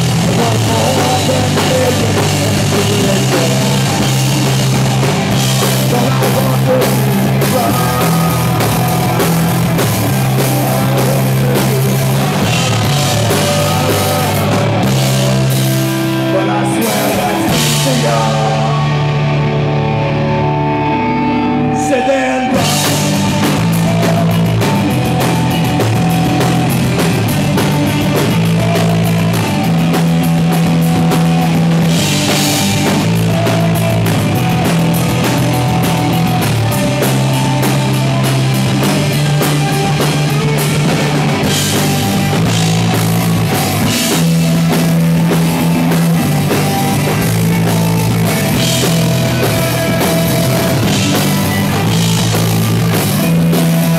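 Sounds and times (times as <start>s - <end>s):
drum kit: 0.0s - 20.0s, 22.5s - 53.9s
bass guitar: 0.0s - 53.9s
electric guitars: 0.0s - 53.9s.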